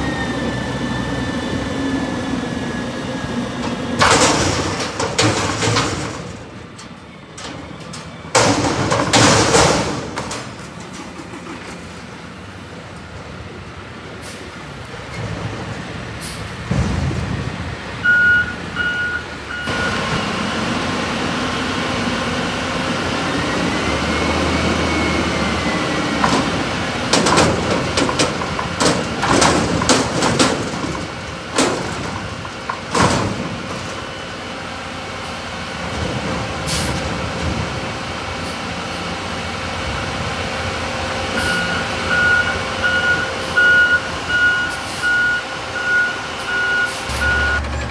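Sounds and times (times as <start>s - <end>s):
garbage truck engine running: 0.0s - 47.9s
hydraulics whining: 0.0s - 47.9s
dumpster banging: 3.3s - 12.3s, 15.0s - 18.0s, 23.8s - 38.4s
reversing alarm beeping: 18.0s - 20.5s, 41.4s - 47.9s.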